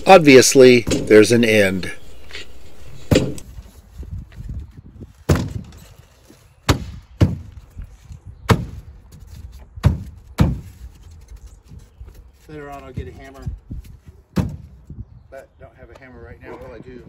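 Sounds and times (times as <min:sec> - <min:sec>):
hands thumping foam blocks: 0:06.7 - 0:07.6, 0:09.8 - 0:10.8, 0:14.3 - 0:14.8.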